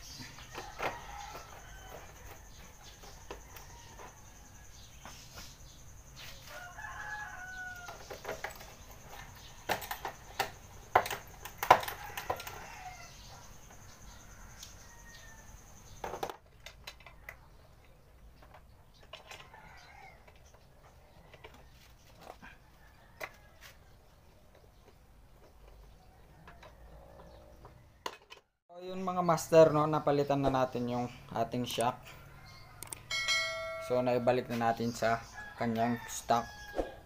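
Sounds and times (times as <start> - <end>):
rooster crowing: 0.3 - 4.8, 6.4 - 8.2, 11.6 - 15.7, 32.0 - 34.3, 35.0 - 37.0.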